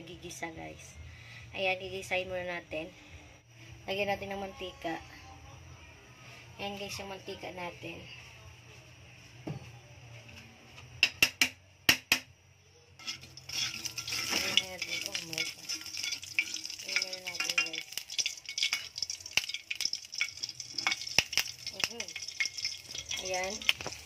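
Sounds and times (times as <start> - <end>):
knocks on a frying pan: 11.0 - 12.3
oil sizzling in a pan: 13.0 - 24.0.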